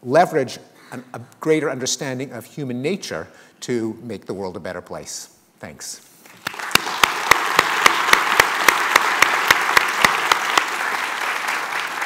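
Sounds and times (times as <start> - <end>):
steady rhythmic claps: 6.2 - 12.0
audience applauding: 6.3 - 12.0.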